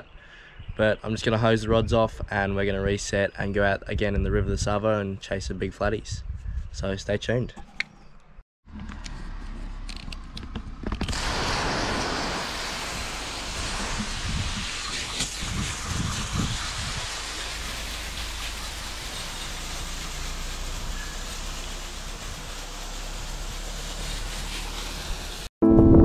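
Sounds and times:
hose nozzle spraying water: 11.0s - 25.5s.

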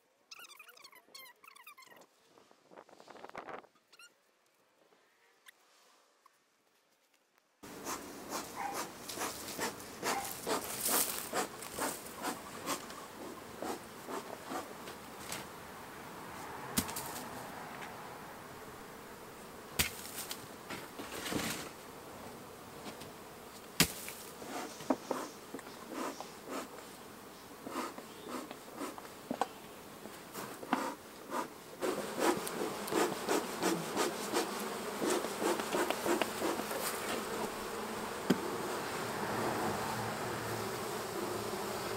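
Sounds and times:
honey bees buzzing: 7.6s - 41.9s
bees zipping past microphone: 7.7s - 14.8s, 30.3s - 41.9s.

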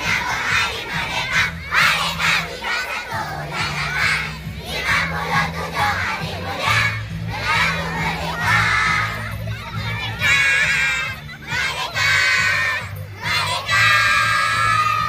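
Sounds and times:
children shouting and cheering: 0.0s - 15.0s
steady low notes: 0.0s - 15.0s.

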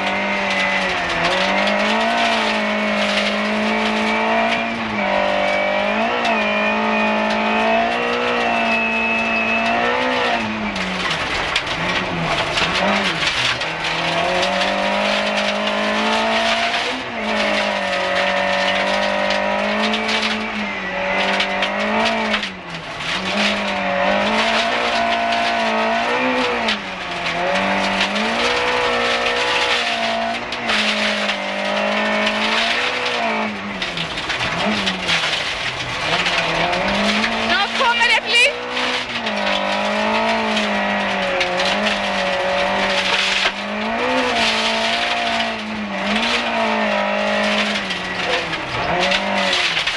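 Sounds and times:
rally car engine at high revs: 0.0s - 49.9s
gravel hiss and rattle: 10.6s - 20.4s, 21.0s - 49.9s.

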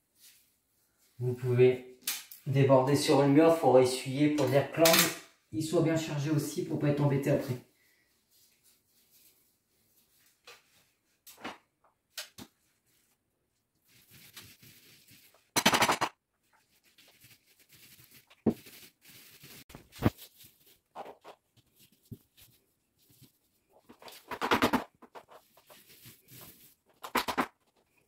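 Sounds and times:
tools knocking and clicking: 15.6s - 16.2s.

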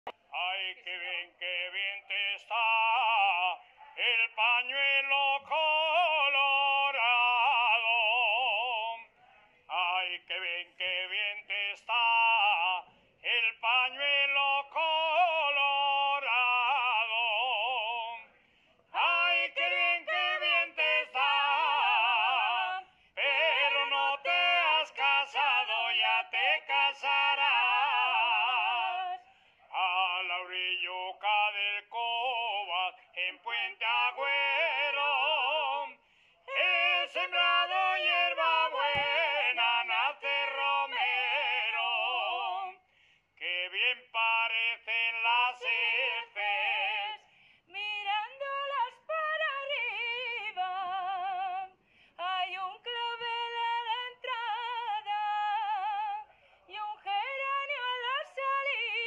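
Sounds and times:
woman singing unaccompanied: 19.0s - 29.2s, 47.7s - 59.0s.

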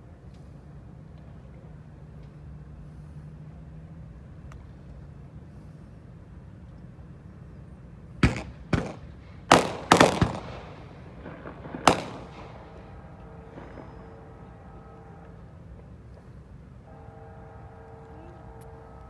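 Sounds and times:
low background rumble: 0.0s - 19.0s
sharp bangs with echo: 8.2s - 14.4s.

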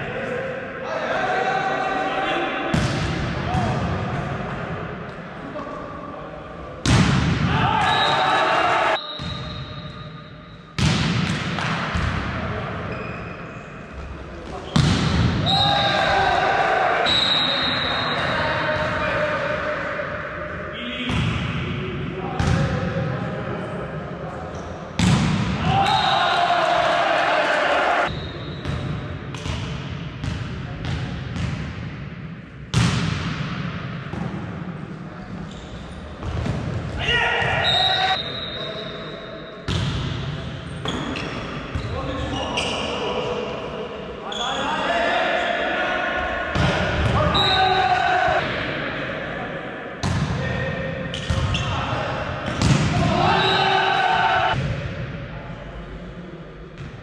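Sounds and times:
players' noise: 0.0s - 57.0s
volleyball impacts echoing: 2.7s - 4.5s, 6.8s - 7.9s, 10.7s - 12.6s, 14.4s - 16.3s, 25.0s - 26.9s, 28.6s - 34.8s, 36.1s - 37.6s, 39.7s - 42.0s, 46.5s - 47.4s, 50.0s - 53.6s
volleyball hits: 10.8s - 12.4s, 14.6s - 16.2s, 25.0s - 26.0s, 32.7s - 34.6s, 52.4s - 53.3s.

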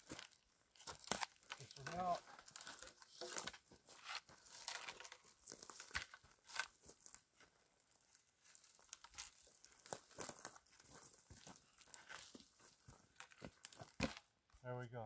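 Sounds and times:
boots crunching on dry grass: 0.0s - 14.2s
sharp crackles: 0.8s - 7.2s.

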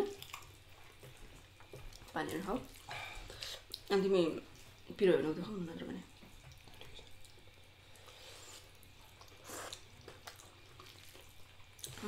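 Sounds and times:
eating noise: 6.5s - 12.0s.

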